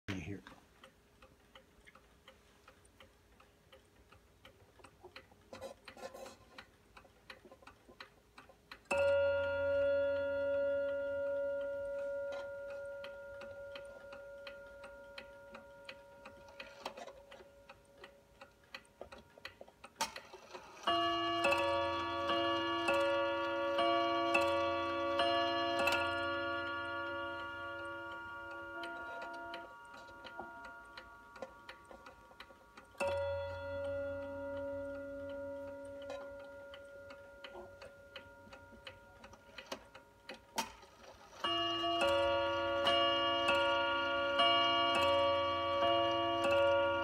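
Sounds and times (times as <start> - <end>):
mantel clock ticking: 0.1 - 47.0
two-note clock chime strikes: 8.9 - 16.6, 20.8 - 32.1, 33.0 - 39.5, 41.5 - 47.0
clock single strike ringing: 8.9 - 17.4, 20.8 - 32.2, 33.0 - 40.0, 41.4 - 47.0.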